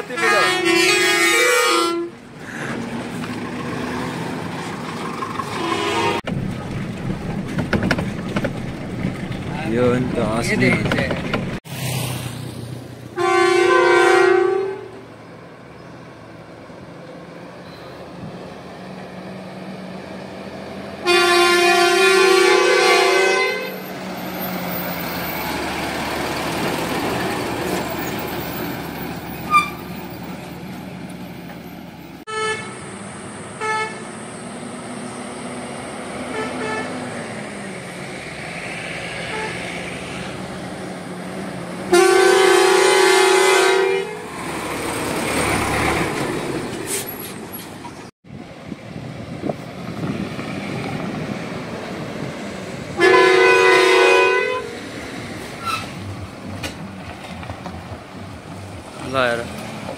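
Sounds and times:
truck horn blasts: 0:00.0 - 0:02.2, 0:05.5 - 0:06.2, 0:13.2 - 0:15.0, 0:21.0 - 0:23.8, 0:29.5 - 0:29.9, 0:32.3 - 0:33.0, 0:33.6 - 0:34.1, 0:36.3 - 0:37.0, 0:39.2 - 0:39.8, 0:41.9 - 0:44.3, 0:53.0 - 0:54.8.

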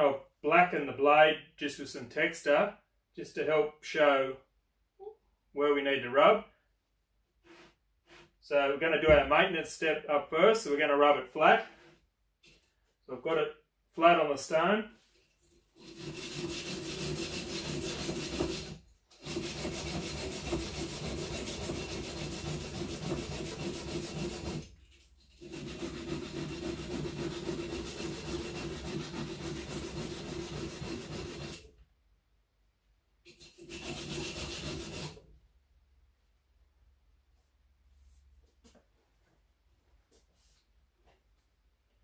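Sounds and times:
knife scrubbing on sharpening stone: 0:15.8 - 0:24.6, 0:33.3 - 0:35.2.

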